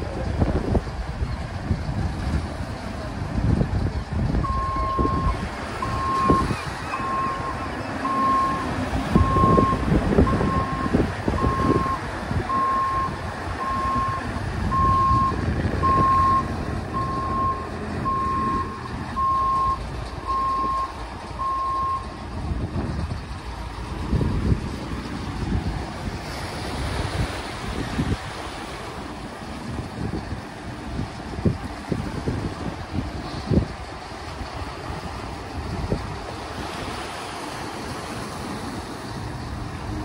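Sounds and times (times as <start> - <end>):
boat engine running: 0.0 - 40.0
sea washing: 0.0 - 40.0
vehicle reversing alarm beeping: 4.4 - 22.2.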